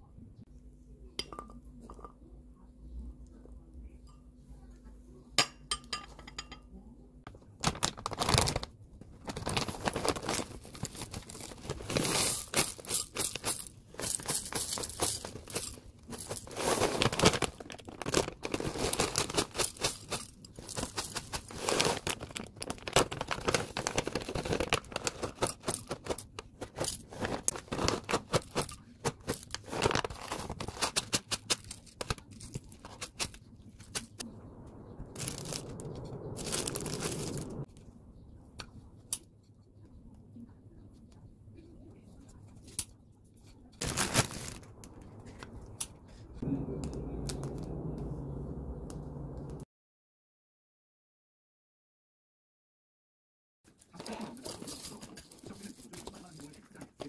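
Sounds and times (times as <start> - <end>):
faint low hum: 0.0 - 49.6
packaging crinkling: 7.6 - 34.2, 36.4 - 37.6, 43.8 - 45.4.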